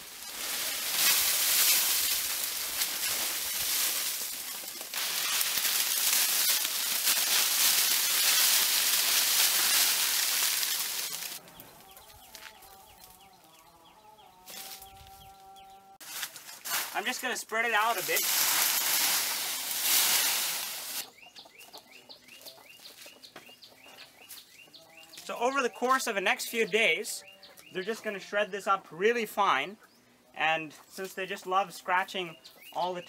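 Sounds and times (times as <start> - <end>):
dry leaves pouring and rustling: 0.0 - 11.4, 16.0 - 21.1
chickens clucking: 20.9 - 25.2.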